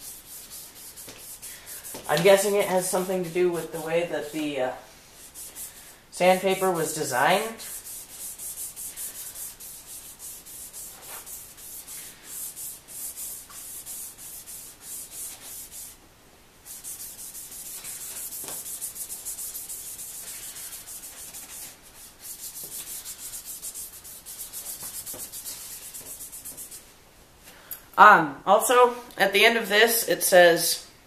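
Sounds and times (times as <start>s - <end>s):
wet-sanding plastic lens by hand: 0.0s - 3.9s, 6.4s - 16.0s, 16.7s - 26.8s.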